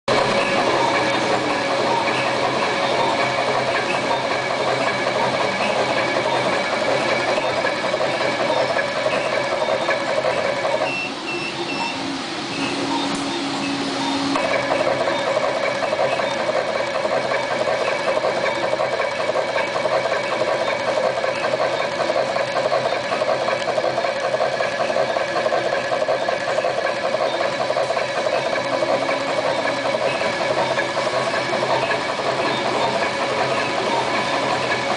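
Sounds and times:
wire stripping machine whirring: 0.1 - 34.9.

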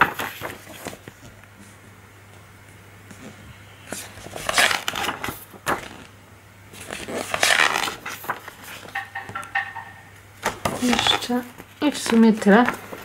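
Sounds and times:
paper pages rustling: 0.0 - 1.8, 3.9 - 6.1, 6.7 - 13.0.

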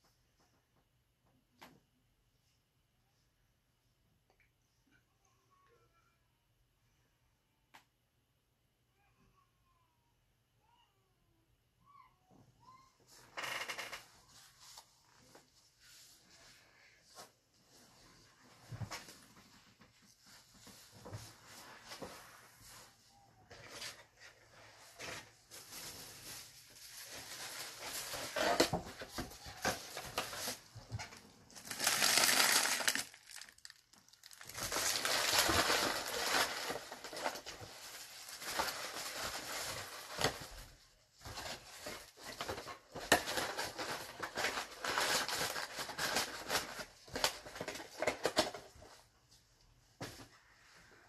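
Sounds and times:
plastic packaging crinkling: 25.5 - 40.6, 41.2 - 48.6.

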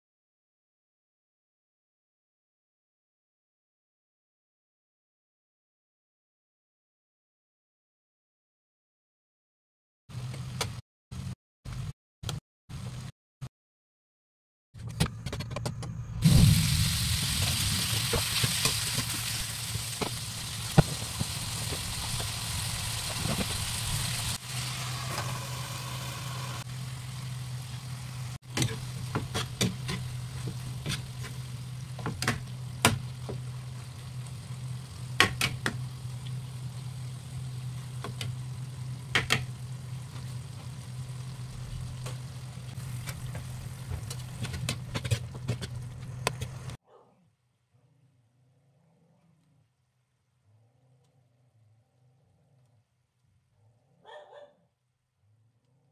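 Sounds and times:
meat sizzling in a frying pan: 16.2 - 32.0
spatula scraping a pan: 28.6 - 31.5.

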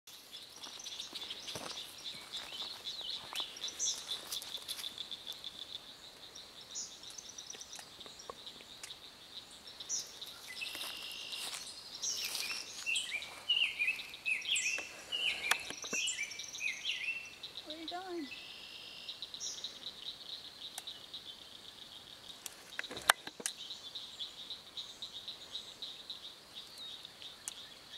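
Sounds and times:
birds trilling and chirping: 0.1 - 27.9.

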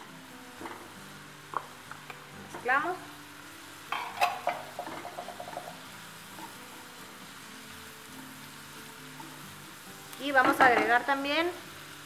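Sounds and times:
faint sizzle: 0.0 - 12.0.

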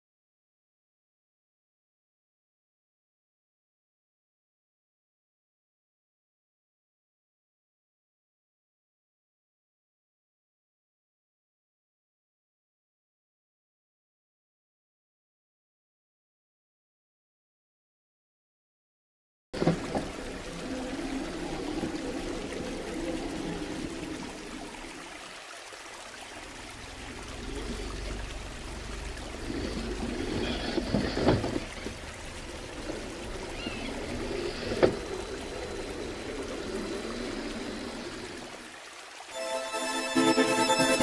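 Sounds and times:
stream water running over rock: 19.6 - 41.0
music: 39.3 - 41.0.

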